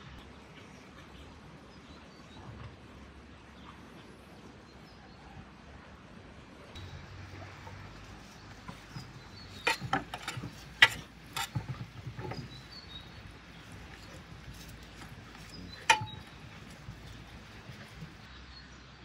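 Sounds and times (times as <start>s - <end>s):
knife scraping metal tray: 8.4s - 18.2s.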